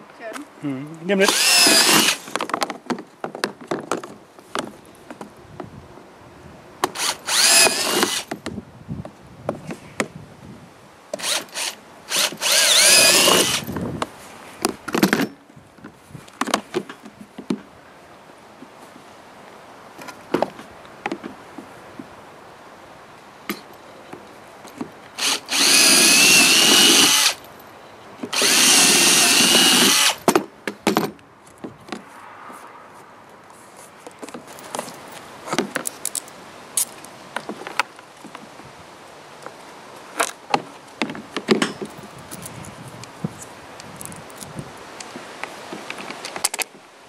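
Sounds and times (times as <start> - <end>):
cordless drill boring plastic: 1.2 - 2.3, 6.9 - 8.3, 11.2 - 13.6, 25.2 - 27.4, 28.3 - 30.2.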